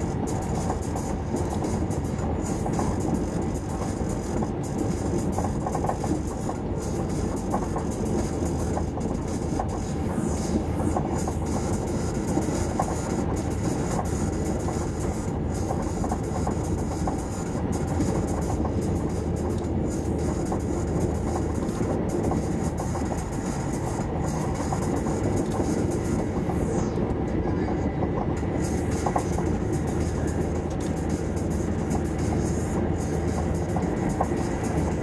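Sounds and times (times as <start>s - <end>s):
train wheels rumbling on rail: 0.0s - 35.0s.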